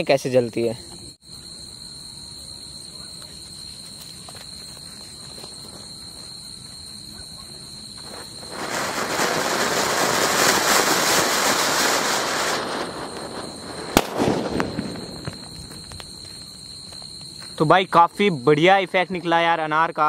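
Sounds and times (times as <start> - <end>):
firework fountain hissing: 7.5 - 16.9
firecracker bang: 8.0 - 16.1
small crackles: 12.5 - 17.6.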